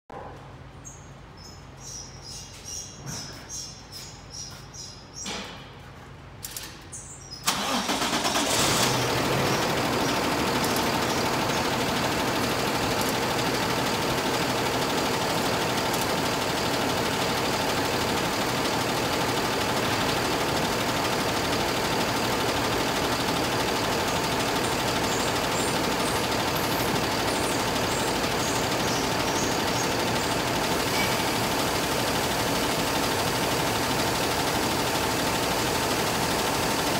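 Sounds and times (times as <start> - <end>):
diesel engine starting and idling: 7.4 - 36.9.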